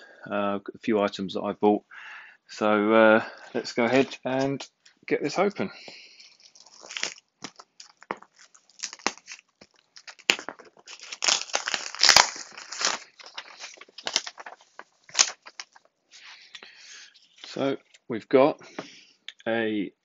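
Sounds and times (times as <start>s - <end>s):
tape and cardboard crinkling: 5.9s - 18.1s
plastic wallet tearing: 6.3s - 15.9s
knife slitting packing tape: 6.6s - 9.4s, 10.0s - 14.3s.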